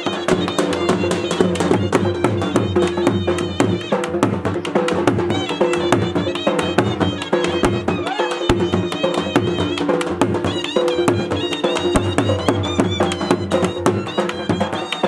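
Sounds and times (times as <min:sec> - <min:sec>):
barrel drums beaten with sticks: 0:00.0 - 0:15.0
melody instrument playing: 0:04.7 - 0:15.0.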